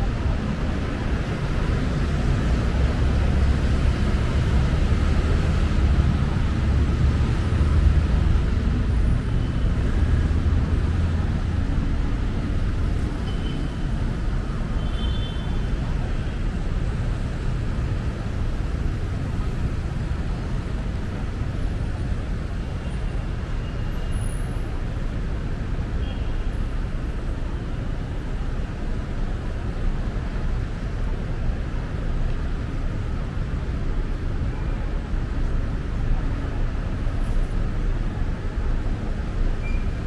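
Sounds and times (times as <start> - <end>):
road traffic rumble: 0.0 - 40.0.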